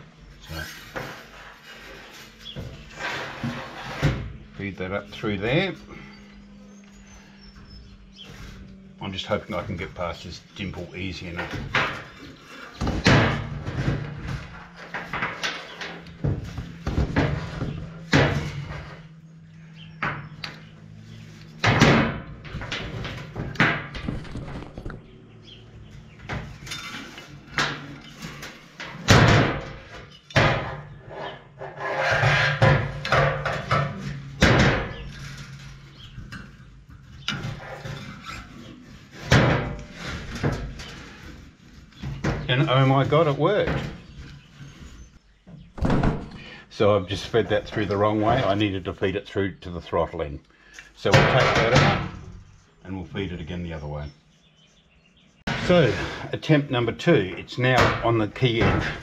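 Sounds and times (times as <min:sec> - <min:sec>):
wiring scraping inside tube: 0:00.4 - 0:05.8, 0:30.9 - 0:33.0, 0:34.9 - 0:45.2.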